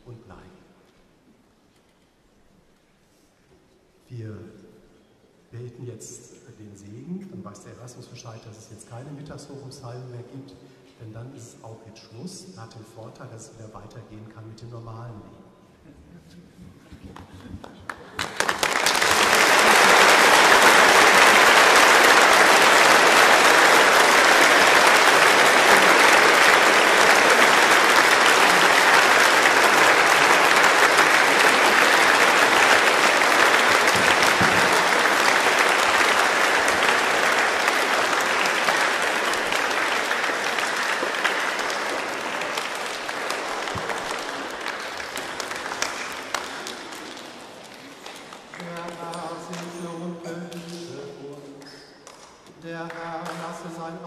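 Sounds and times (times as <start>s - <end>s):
congregation applauding: 17.6s - 54.0s.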